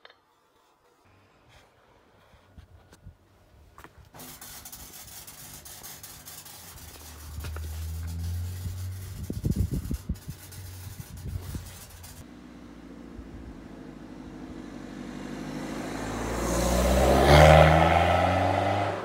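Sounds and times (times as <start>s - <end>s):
exhaust gas hissing: 4.1s - 14.1s
low engine rumble: 4.3s - 16.4s.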